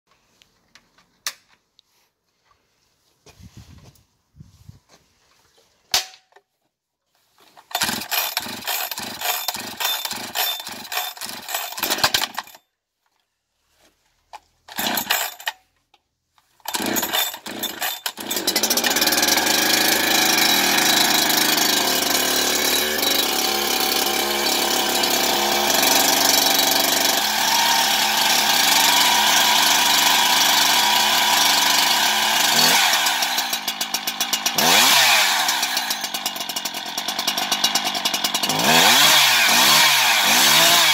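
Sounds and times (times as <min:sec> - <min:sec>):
chainsaw recoil starter pulls: 0:07.5 - 0:12.6, 0:14.4 - 0:15.7, 0:16.4 - 0:40.9
chainsaw engine idling and revving: 0:07.7 - 0:12.6, 0:14.7 - 0:15.4, 0:16.7 - 0:40.9.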